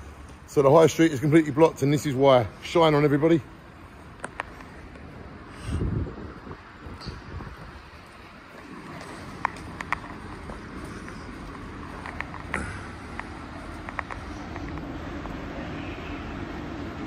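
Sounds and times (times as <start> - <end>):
emergency vehicle engines idling: 0.0 - 17.0
sharp clicks: 12.0 - 14.9.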